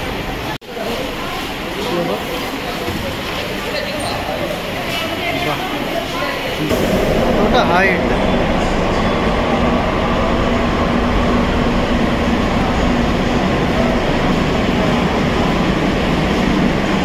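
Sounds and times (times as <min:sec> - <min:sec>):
metro train rumbling hum: 0:04.2 - 0:17.0.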